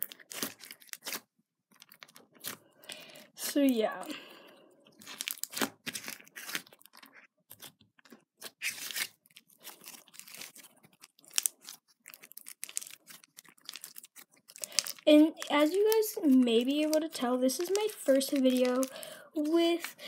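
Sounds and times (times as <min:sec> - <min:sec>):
slime with beads squished by hand: 0:05.0 - 0:07.8, 0:08.4 - 0:20.0
crunchy crackles: 0:08.5 - 0:20.0.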